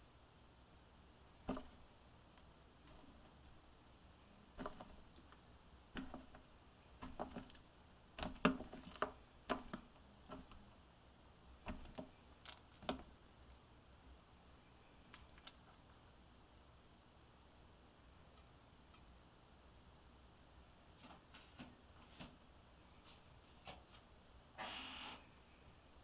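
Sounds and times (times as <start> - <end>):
snake coils tapping plastic: 1.4 - 3.6, 4.5 - 10.8, 11.6 - 13.2.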